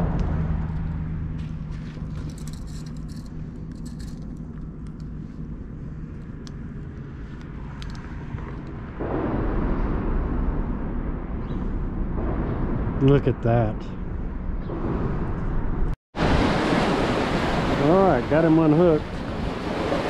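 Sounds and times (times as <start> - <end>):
low motor hum: 0.0 - 16.0.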